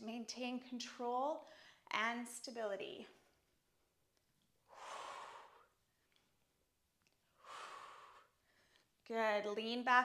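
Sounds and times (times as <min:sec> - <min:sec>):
woman breathing: 0:01.4 - 0:01.9, 0:04.6 - 0:06.2, 0:07.2 - 0:09.0.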